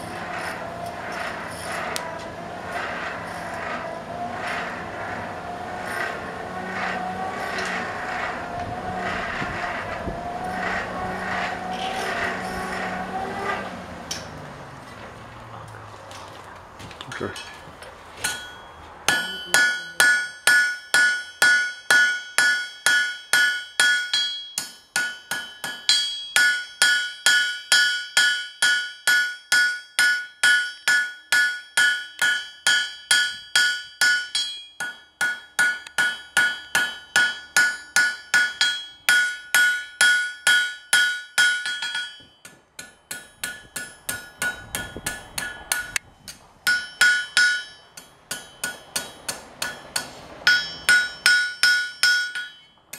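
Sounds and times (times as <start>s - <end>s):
hammer striking metal on anvil: 18.2s - 52.8s.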